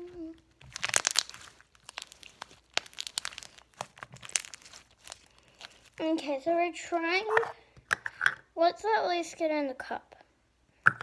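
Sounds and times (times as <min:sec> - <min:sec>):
slime squelching and crackling: 0:00.0 - 0:06.4.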